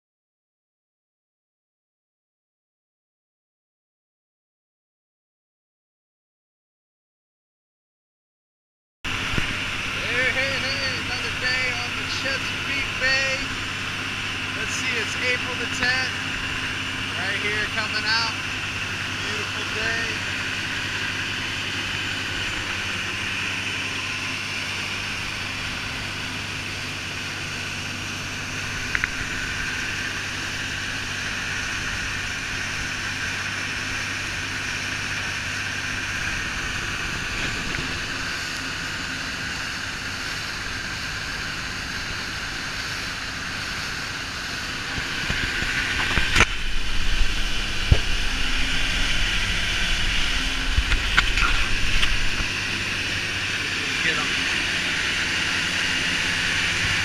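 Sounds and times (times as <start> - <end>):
boat engine running: 9.1 - 57.0
wake rushing: 35.6 - 57.0.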